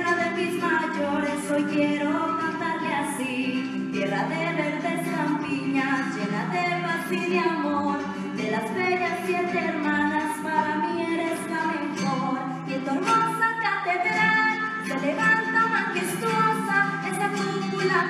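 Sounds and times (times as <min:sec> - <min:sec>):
woman singing folk song: 0:00.0 - 0:18.0.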